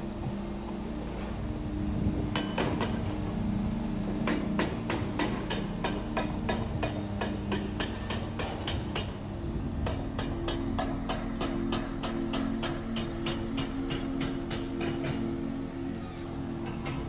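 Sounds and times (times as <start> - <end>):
low machinery engine hum: 0.0 - 17.0
rapid hammering on concrete: 4.2 - 9.2, 9.8 - 15.3.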